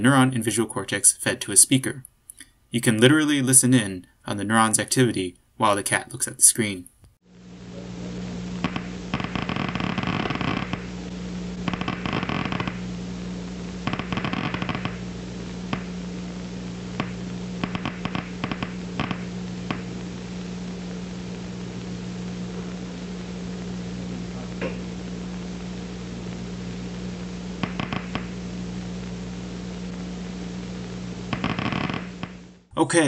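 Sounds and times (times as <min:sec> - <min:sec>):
electrical hum and hiss: 0:00.0 - 0:33.0
sharp pops crackling: 0:06.8 - 0:32.7.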